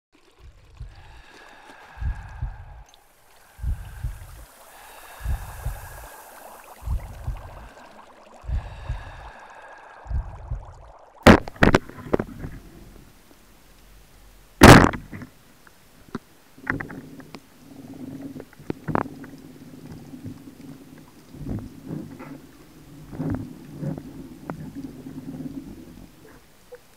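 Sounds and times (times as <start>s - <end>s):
sharp underwater clicks: 0.2s - 14.0s
water bubbling: 0.2s - 26.9s
loud underwater crack: 0.4s - 13.2s, 14.5s - 15.4s, 18.2s - 26.7s
deep thumps: 2.0s - 2.9s, 3.6s - 4.4s, 5.2s - 6.0s, 6.8s - 7.7s, 10.1s - 12.6s.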